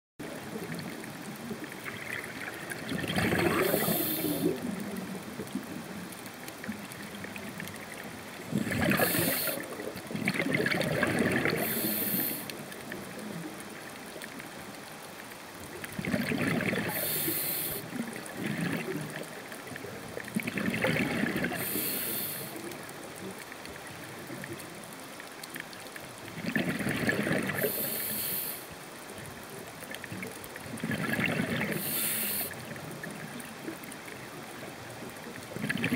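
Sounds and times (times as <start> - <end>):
gurgling rush of bubbles: 0.2 - 6.0, 6.6 - 13.4, 15.7 - 22.7, 26.2 - 28.4, 30.0 - 34.3, 35.3 - 35.9
steady underwater hiss: 0.2 - 25.4, 26.0 - 35.9
regulator inhalation hiss: 3.5 - 4.5, 8.8 - 9.6, 11.6 - 12.5, 16.9 - 17.9, 21.5 - 22.6, 27.6 - 28.7, 31.8 - 32.6.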